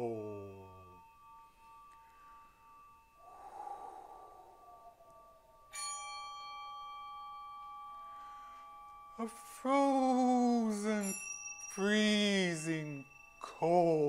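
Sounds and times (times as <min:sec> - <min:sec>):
metal bell ringing: 0:00.0 - 0:03.5, 0:05.2 - 0:14.0
breathy whoosh: 0:03.2 - 0:05.4.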